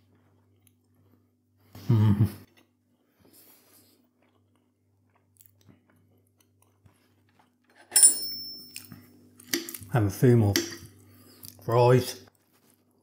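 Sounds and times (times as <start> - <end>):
faint chewing: 0.0 - 1.4, 2.4 - 7.7.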